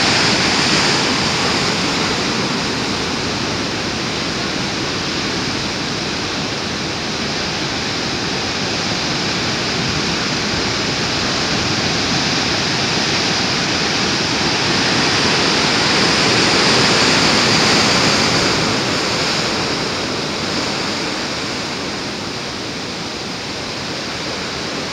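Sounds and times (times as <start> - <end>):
surf breaking on rocky shore: 0.0 - 24.9.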